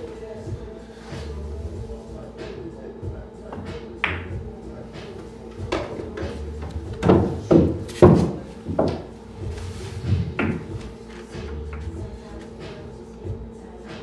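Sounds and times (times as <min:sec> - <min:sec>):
pool balls knocking together: 0:03.5 - 0:04.4, 0:05.0 - 0:09.1, 0:09.8 - 0:12.5.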